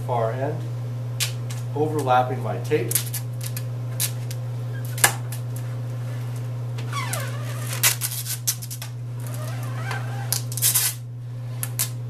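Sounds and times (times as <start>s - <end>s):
steady low hum: 0.0s - 12.0s
tape squealing off roll: 6.9s - 8.4s, 9.2s - 11.0s.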